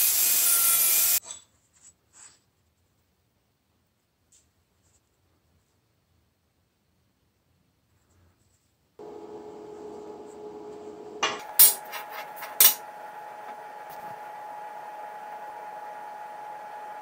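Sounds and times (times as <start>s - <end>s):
steady humming tone: 9.0s - 17.0s
steel pieces clanking on table: 11.5s - 12.8s.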